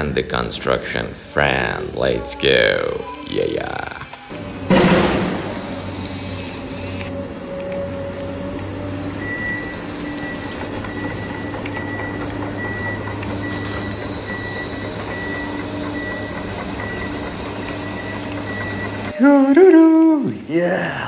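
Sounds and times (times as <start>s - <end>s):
engine-like drone: 0.0s - 21.0s
whir of drive motors: 0.0s - 21.0s
warning beep: 9.1s - 19.7s.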